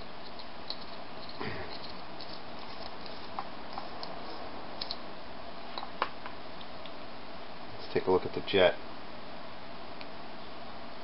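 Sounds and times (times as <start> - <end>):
steady background hiss: 0.0 - 11.0
wrench and metal parts clicking: 0.2 - 3.2.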